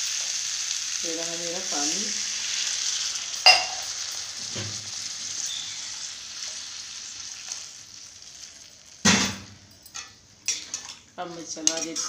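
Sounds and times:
vegetables sizzling in a pan: 0:00.0 - 0:12.0
sharp metal clink: 0:03.5 - 0:03.8.

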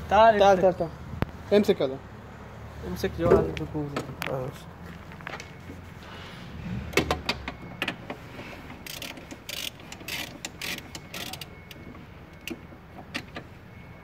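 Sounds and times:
socket ratchet clicking: 0:08.8 - 0:11.5.

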